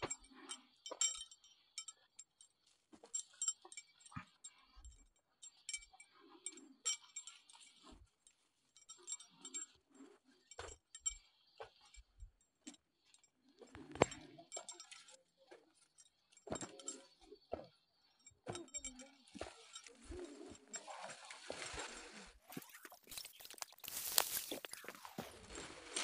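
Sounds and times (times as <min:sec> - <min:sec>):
footsteps on dirt trail: 0:23.1 - 0:25.8.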